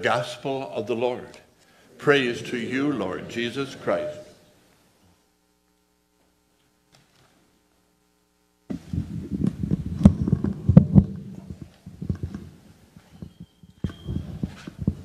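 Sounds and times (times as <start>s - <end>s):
faint mains hum: 0.0s - 15.0s
microphone handling noise: 8.7s - 15.0s.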